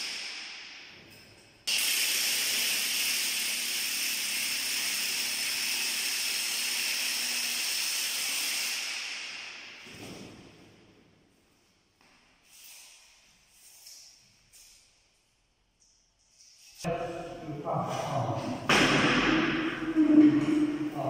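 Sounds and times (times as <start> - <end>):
power drill drilling into wall: 1.7 - 9.0.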